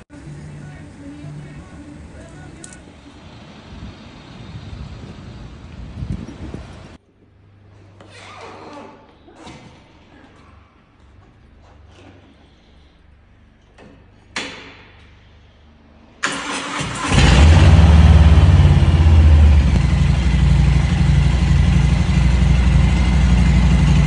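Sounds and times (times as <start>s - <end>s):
motorcycle engine idling: 17.0s - 24.0s.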